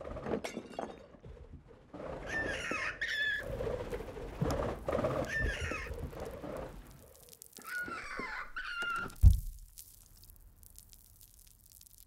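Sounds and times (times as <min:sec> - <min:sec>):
shrill bird-like screeching: 0:02.3 - 0:03.5, 0:05.2 - 0:06.0, 0:07.6 - 0:09.2.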